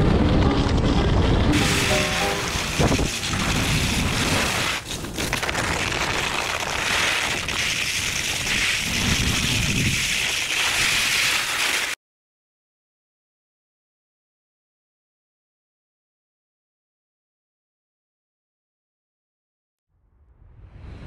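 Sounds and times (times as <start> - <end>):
skis sliding on snow: 1.5 - 12.0
wind on microphone: 2.5 - 4.8, 7.2 - 10.3.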